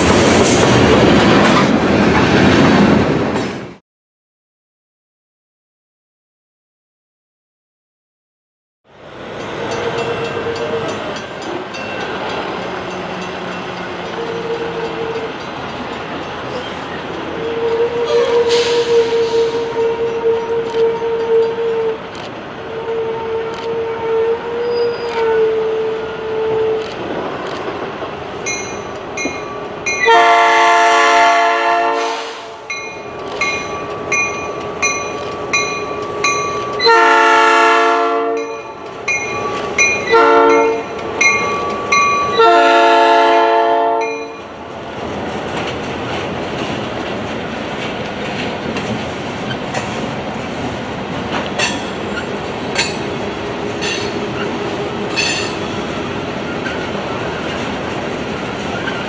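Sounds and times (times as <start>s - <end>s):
crossing bell ringing: 9.4s - 17.3s, 28.4s - 30.4s, 32.7s - 37.0s, 38.3s - 42.6s, 44.0s - 44.6s, 55.1s - 55.8s
train horn: 14.0s - 15.3s, 17.4s - 22.0s, 22.6s - 26.8s, 30.0s - 32.7s, 36.8s - 38.7s, 40.1s - 40.9s, 42.3s - 44.4s
train wheels clicking over rail joints: 32.7s - 36.9s, 44.9s - 59.0s.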